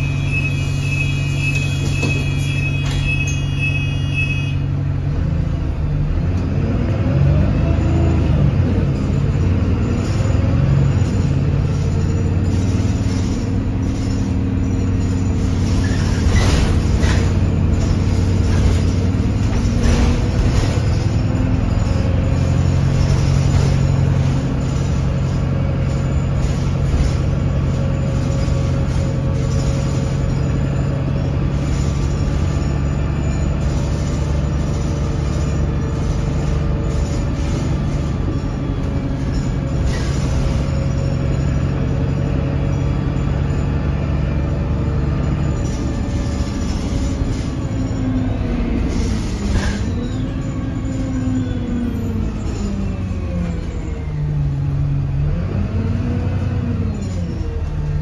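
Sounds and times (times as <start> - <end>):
bus engine drone: 0.0 - 58.0
knocks from bus body: 1.8 - 3.1.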